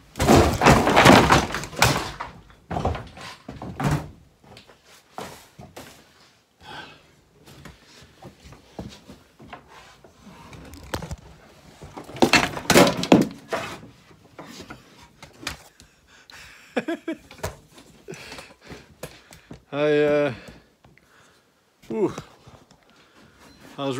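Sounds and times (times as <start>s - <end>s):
camera clattering on bench and floor: 10.5s - 13.8s.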